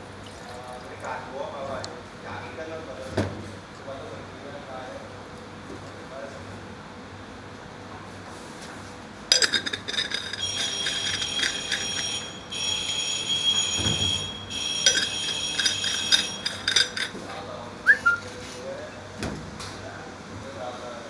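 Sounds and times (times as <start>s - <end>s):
steel parts clinking: 9.3s - 12.6s, 13.6s - 17.2s
metal scraping squeal: 10.3s - 17.1s.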